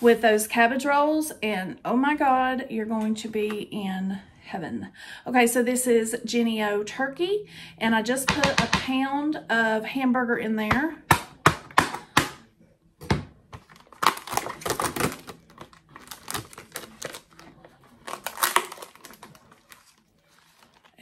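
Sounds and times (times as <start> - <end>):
knife cutting plastic package: 13.6 - 21.0
plastic wrapper crinkling: 13.6 - 21.0.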